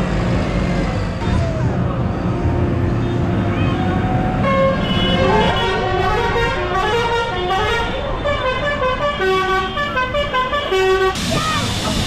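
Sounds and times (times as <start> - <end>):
tractor engines running: 0.0 - 7.1.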